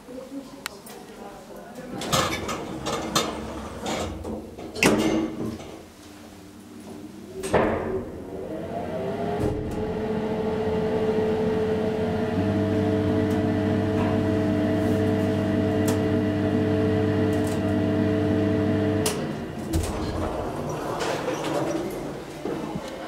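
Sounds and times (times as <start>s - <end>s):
elevator pump humming: 8.2s - 22.3s
deeper hum: 9.9s - 20.5s.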